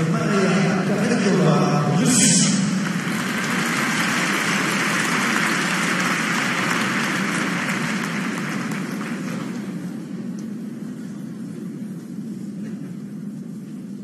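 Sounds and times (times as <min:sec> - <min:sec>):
crowd applauding and cheering: 0:02.1 - 0:09.8.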